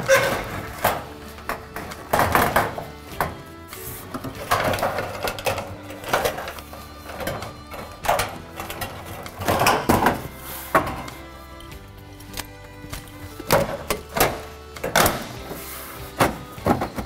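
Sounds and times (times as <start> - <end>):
steel panel knocking and rattling: 0.0 - 3.4, 4.1 - 11.1
background music: 0.0 - 17.0.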